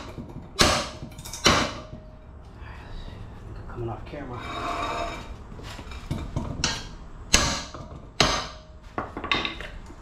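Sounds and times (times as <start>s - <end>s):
hammer striking metal: 0.0s - 2.2s, 6.6s - 9.6s.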